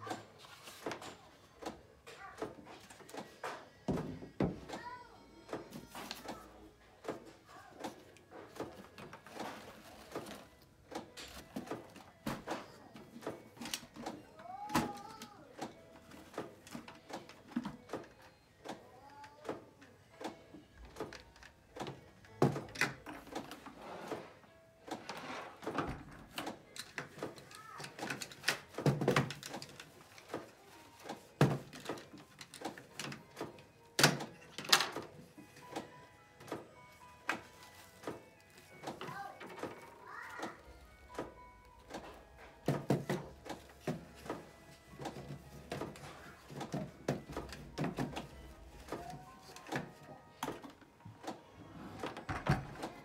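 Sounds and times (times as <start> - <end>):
plastic parts clicking and clattering: 0.0 - 53.0
plastic parts thumping down: 24.9 - 36.6, 37.2 - 51.3
plastic filter parts knocking: 41.9 - 50.8.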